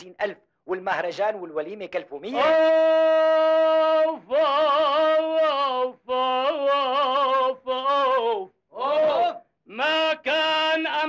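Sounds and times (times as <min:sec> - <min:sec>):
person singing solo: 0:02.3 - 0:11.0.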